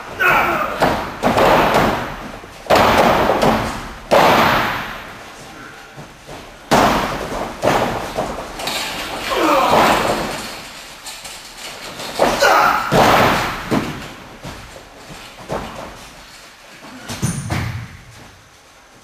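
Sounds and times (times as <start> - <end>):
bodies slamming onto ring floor: 0.0 - 5.2, 6.0 - 10.7, 12.1 - 14.8.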